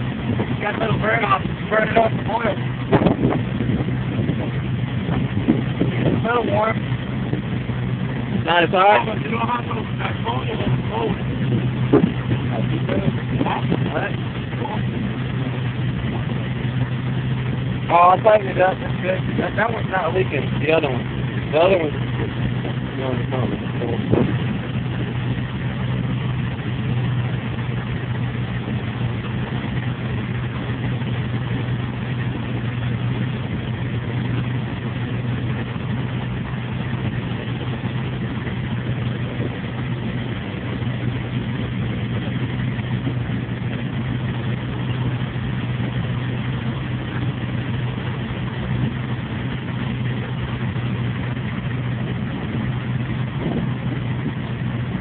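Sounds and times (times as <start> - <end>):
boat engine humming: 0.0 - 55.0.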